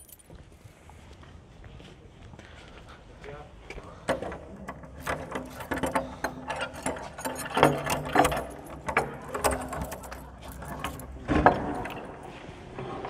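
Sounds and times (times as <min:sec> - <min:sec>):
door lock clicking and rattling: 0:04.1 - 0:12.2.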